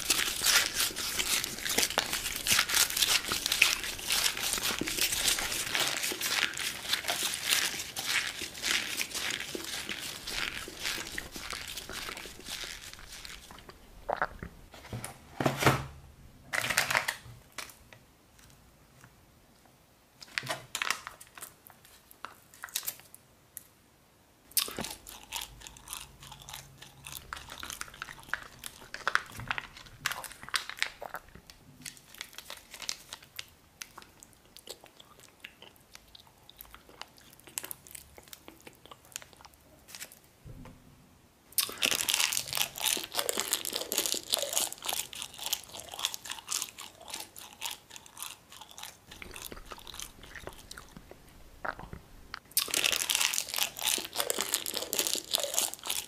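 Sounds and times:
plastic sachet crinkling: 0.0s - 14.5s, 20.2s - 23.1s, 24.7s - 34.3s, 41.6s - 51.9s, 52.6s - 56.0s
crunching bites and chewing: 0.0s - 14.6s, 24.5s - 40.2s, 41.6s - 56.0s.

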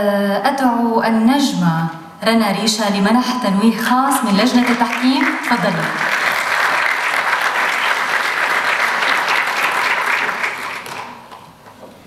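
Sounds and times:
audience applauding: 4.4s - 11.5s.

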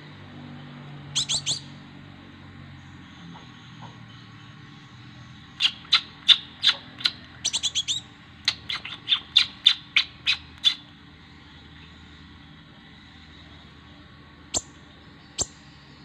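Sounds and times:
bird chirping sharply: 1.1s - 1.8s, 5.5s - 10.8s.

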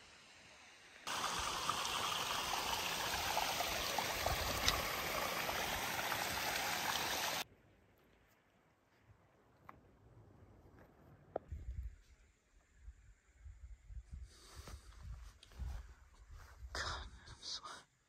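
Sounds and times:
stream running over rocks: 0.0s - 7.4s.

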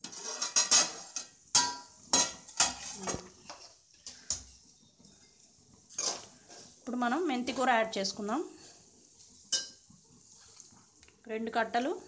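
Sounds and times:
metal pan lid clanking on rim: 0.4s - 3.0s.

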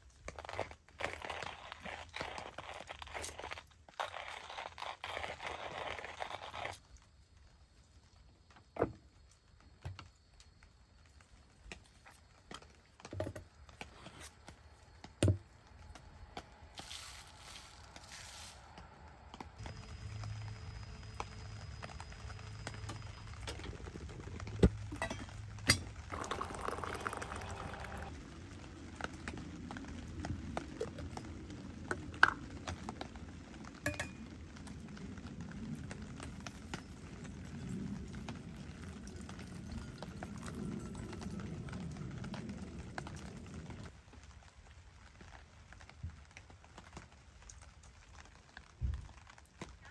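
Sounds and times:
short scraping hiss: 16.8s - 18.7s
coffee gear knocks and clinks: 33.9s - 34.2s.

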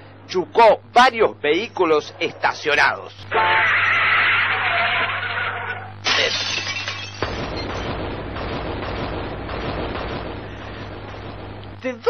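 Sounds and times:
glass shattering: 6.0s - 8.0s
crashing metal: 6.0s - 11.3s.

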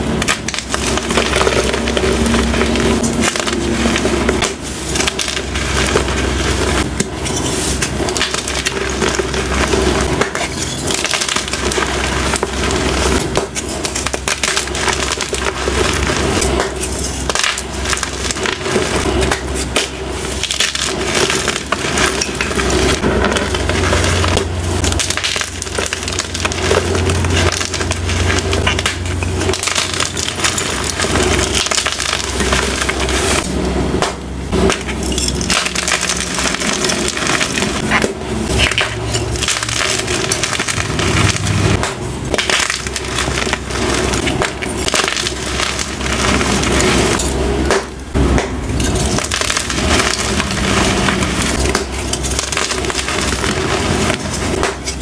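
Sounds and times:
chalk crunching by hand: 0.0s - 33.5s.

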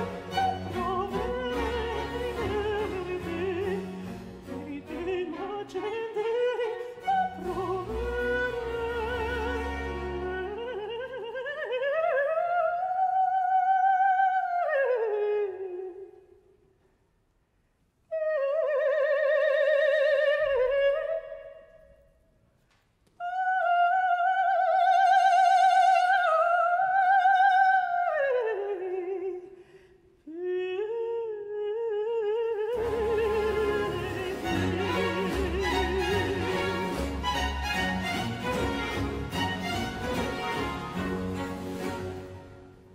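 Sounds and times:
countertenor singing: 0.0s - 12.1s, 32.2s - 42.6s
orchestra strings: 0.0s - 12.2s, 32.5s - 42.9s.

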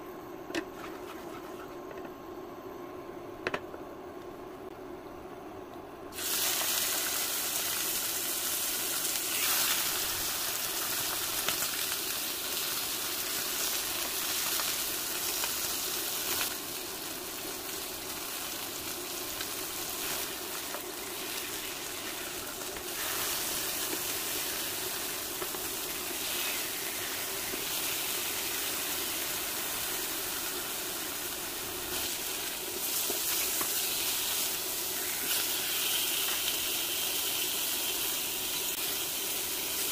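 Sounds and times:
chicken sizzling in hot oil: 6.1s - 39.9s.

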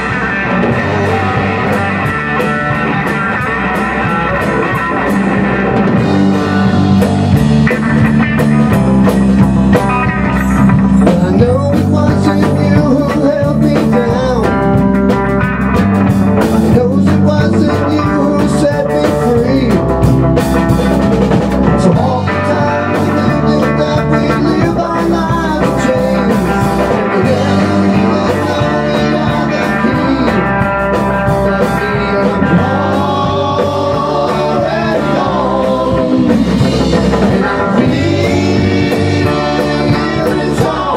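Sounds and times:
men singing: 0.0s - 2.2s, 11.0s - 15.1s, 16.4s - 20.0s, 20.6s - 40.9s
distorted electric guitar: 0.0s - 40.9s
drum kit beat: 0.0s - 40.9s
electric bass: 0.0s - 40.9s.

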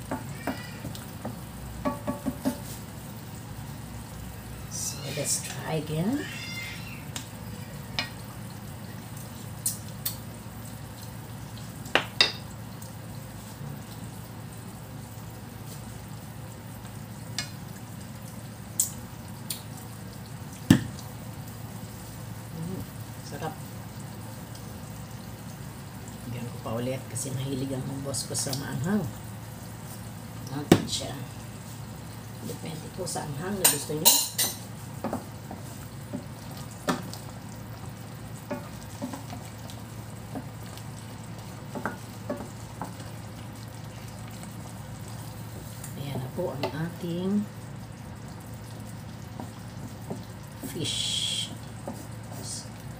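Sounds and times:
spatula knocking and scraping pan: 0.0s - 2.8s, 41.7s - 43.0s
sauce bubbling and sizzling: 0.0s - 52.9s.

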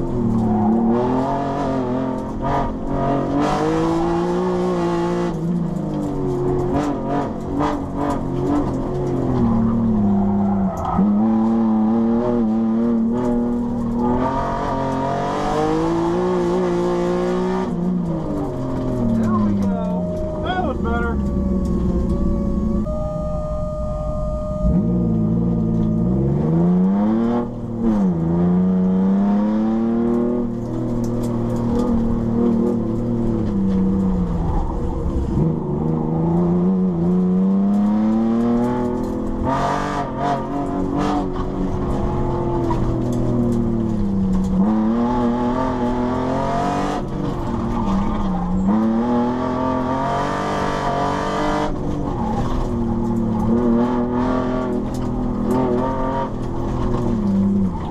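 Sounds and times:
car engine revving: 0.0s - 57.9s.

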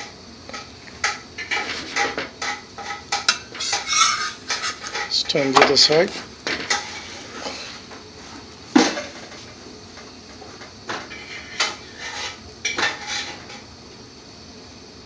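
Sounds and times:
metal pots and pans clattering: 0.5s - 7.9s, 8.7s - 9.5s, 10.5s - 13.6s.

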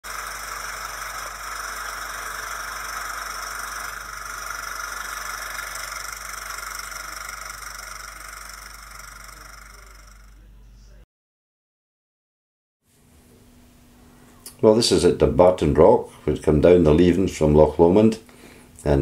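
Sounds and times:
film projector whirring: 0.0s - 10.6s
low mains hum: 0.1s - 11.0s, 12.9s - 19.0s.

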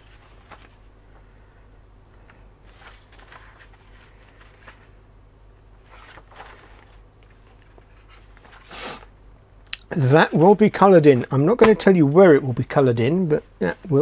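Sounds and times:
paper pages rustling: 0.0s - 0.9s, 2.3s - 5.0s, 5.8s - 8.7s
steady low hum: 0.0s - 14.0s.

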